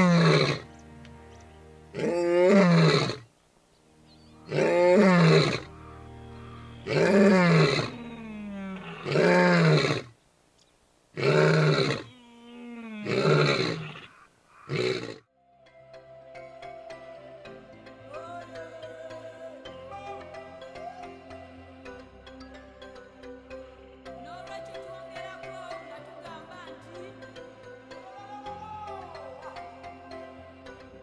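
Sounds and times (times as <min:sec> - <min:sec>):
lion roaring: 0:00.0 - 0:00.6, 0:02.0 - 0:03.2, 0:04.5 - 0:05.7, 0:06.8 - 0:10.1, 0:11.2 - 0:15.2
soft background music: 0:00.0 - 0:09.4, 0:15.3 - 0:31.0.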